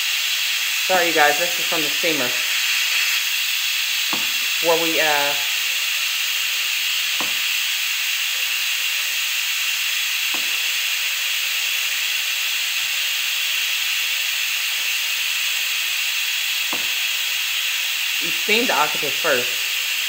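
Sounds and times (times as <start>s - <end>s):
food steamer hissing: 0.0s - 20.0s
knife knocking on cutting board: 4.1s - 4.4s, 7.2s - 7.4s.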